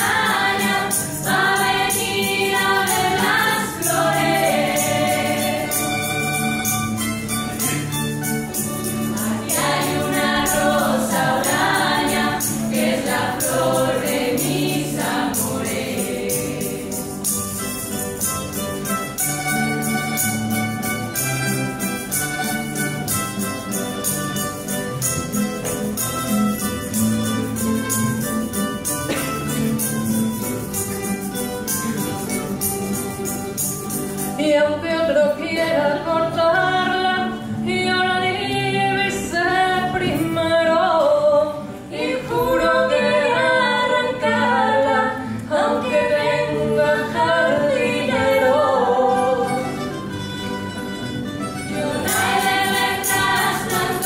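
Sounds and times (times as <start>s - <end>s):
women singing: 0.0s - 6.5s, 9.1s - 17.3s, 34.4s - 49.8s, 51.7s - 54.0s
guitars fast strumming: 45.2s - 54.0s.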